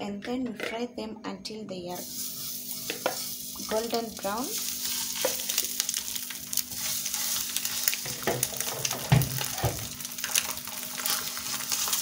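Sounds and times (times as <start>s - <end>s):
oil sizzling in frying pan: 2.0s - 12.0s
eggs knocking into pan: 8.0s - 10.4s.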